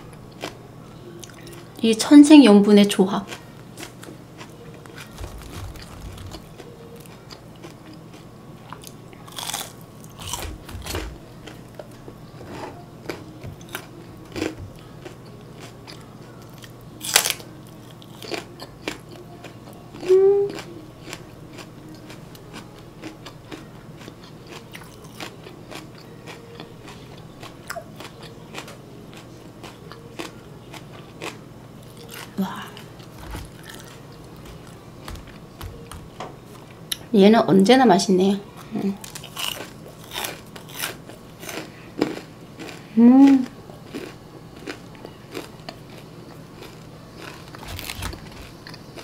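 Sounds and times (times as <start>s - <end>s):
chewing crispy food: 0.0s - 1.8s, 3.2s - 37.0s, 38.5s - 49.0s
crunchy bites: 8.8s - 11.6s, 39.0s - 46.0s
person humming: 19.2s - 20.9s, 42.9s - 43.6s.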